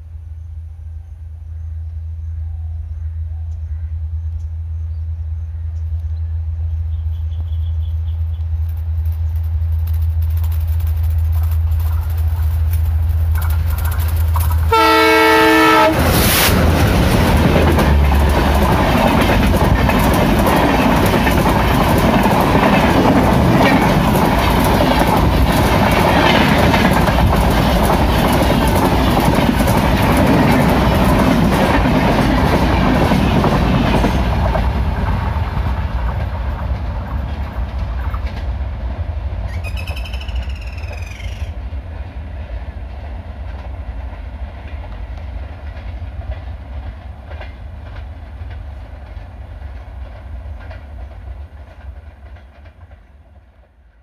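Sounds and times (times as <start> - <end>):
diesel locomotive engine drone: 0.0 - 54.0
train wheels clickety-clack: 7.3 - 54.0
locomotive horn blast: 14.7 - 16.6.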